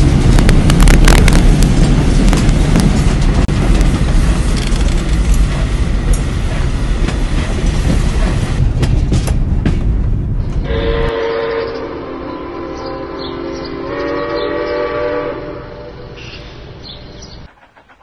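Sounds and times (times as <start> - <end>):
wheels clicking on rail: 0.0 - 10.6, 17.2 - 18.0
steam train rumbling: 0.0 - 18.0
steam whistle blowing: 10.7 - 15.9.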